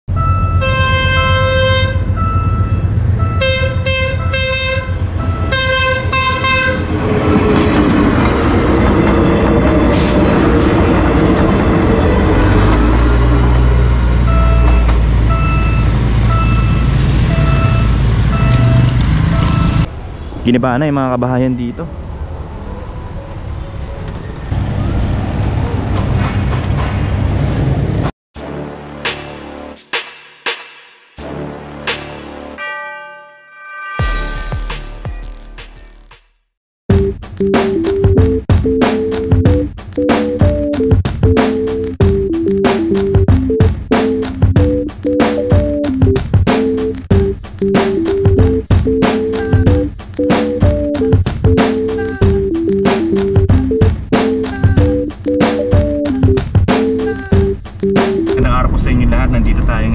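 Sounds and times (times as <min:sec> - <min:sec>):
train horn blasts: 0:00.1 - 0:07.0, 0:32.6 - 0:34.5
train rumbling: 0:00.2 - 0:20.2, 0:21.9 - 0:28.1, 0:37.0 - 0:59.9
vehicle engines rumbling past: 0:01.4 - 0:28.1.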